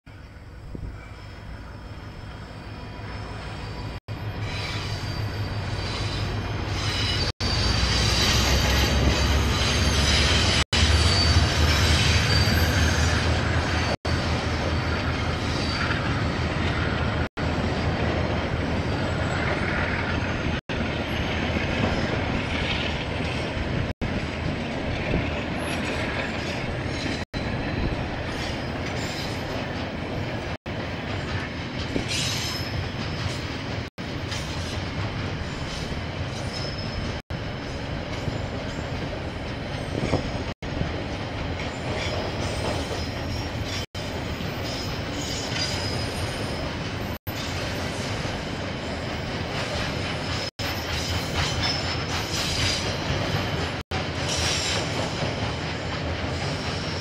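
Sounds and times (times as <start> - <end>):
diesel train engine rumble: 0.1 - 45.2
wheels squealing: 1.3 - 14.0.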